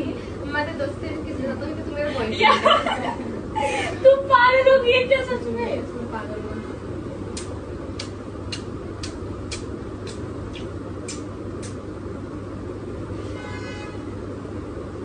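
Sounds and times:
lip smacks from kissing: 7.4 - 11.8.

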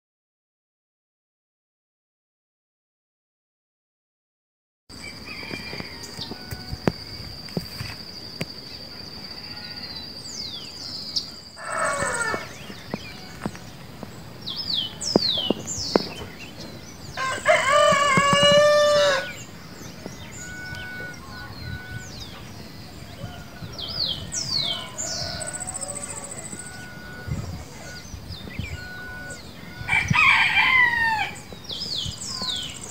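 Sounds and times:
small birds chirping: 4.9 - 30.4, 31.0 - 32.9
rooster crowing: 5.0 - 7.2, 11.6 - 13.5, 17.1 - 22.2, 23.1 - 28.0, 28.7 - 31.5.

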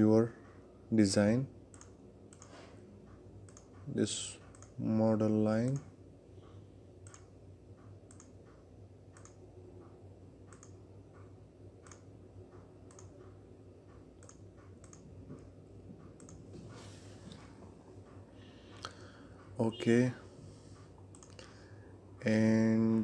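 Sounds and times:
computer mouse clicks: 1.7 - 4.8, 5.6 - 16.4, 20.8 - 21.6.

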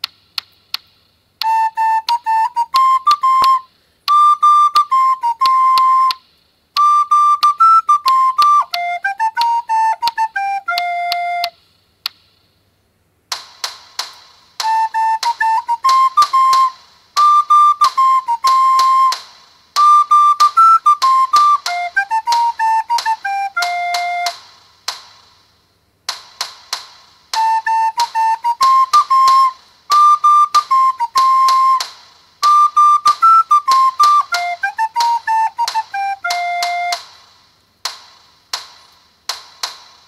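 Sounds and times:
recorder melody: 1.4 - 6.2, 6.8 - 11.6, 14.6 - 19.2, 19.8 - 24.4, 27.4 - 37.1
sharp percussive hits: 13.3 - 21.7, 24.2 - 25.5, 26.1 - 34.4, 36.8 - 40.0.

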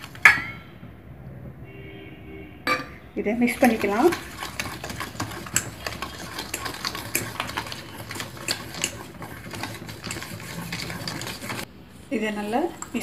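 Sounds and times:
metal spoon scraping steel bowl: 2.7 - 11.7.

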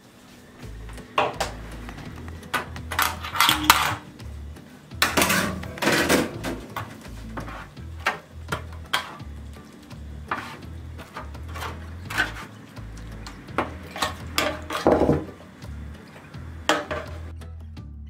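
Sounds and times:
dishes and cutlery clinking: 2.2 - 4.1, 5.0 - 9.3, 10.3 - 15.4, 16.0 - 17.3.

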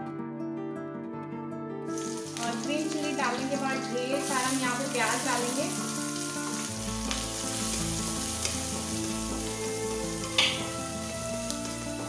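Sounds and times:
onions sizzling in oil: 2.0 - 12.0
spatula knocking on pan: 10.3 - 10.7.

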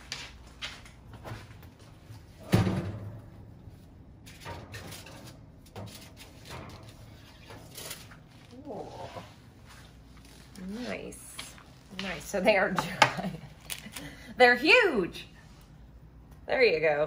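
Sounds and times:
kitchen knocks and clatter: 2.4 - 3.3.

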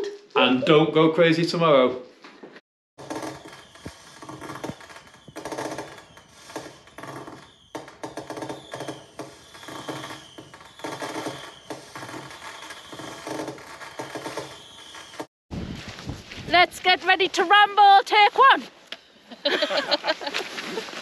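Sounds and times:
fireworks crackling and popping: 3.1 - 7.7, 9.4 - 17.3.

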